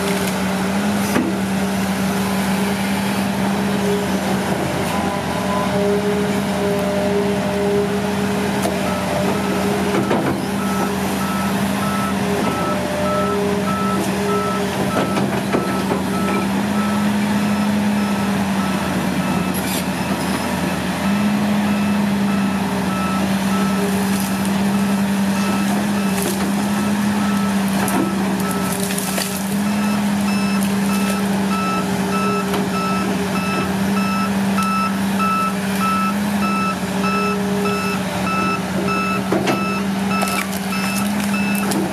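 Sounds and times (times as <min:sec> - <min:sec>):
excavator engine and hydraulics: 0:00.0 - 0:41.9
wood cracking: 0:25.9 - 0:31.4, 0:40.2 - 0:41.9
warning alarm beeping: 0:29.7 - 0:41.7.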